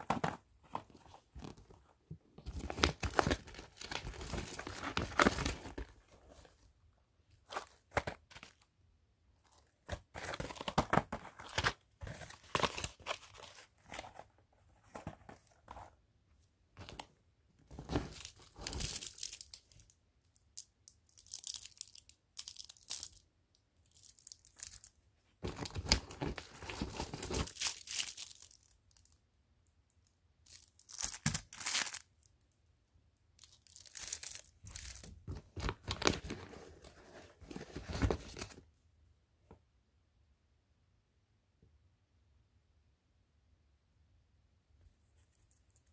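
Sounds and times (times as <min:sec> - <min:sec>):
cardboard and paper rustling: 0:00.0 - 0:06.7, 0:07.3 - 0:08.7, 0:09.4 - 0:16.0, 0:16.8 - 0:19.5, 0:25.4 - 0:28.5, 0:33.7 - 0:38.6.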